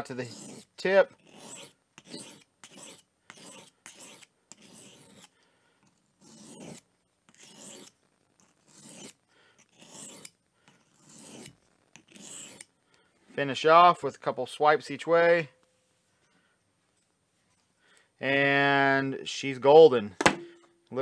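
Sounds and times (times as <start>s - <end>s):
knife rasping on sharpening stone: 0.1s - 5.4s, 6.2s - 12.7s.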